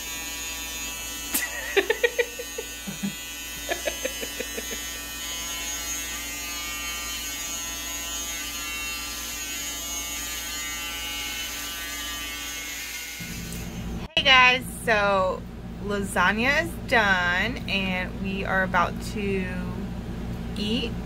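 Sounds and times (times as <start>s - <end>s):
electric hair clippers buzzing: 0.0s - 14.1s
bursts of laughter: 1.4s - 4.9s.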